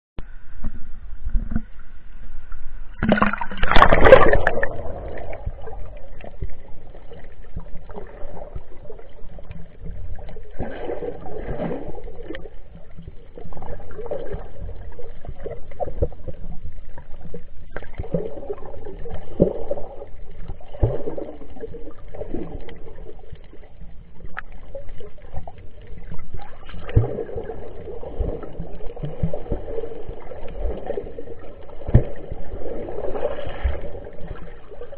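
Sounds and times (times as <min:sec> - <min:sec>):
muffled underwater wash: 0:00.2 - 0:34.9
water sloshing and gurgling: 0:00.2 - 0:34.9
loud water splash: 0:03.0 - 0:06.2.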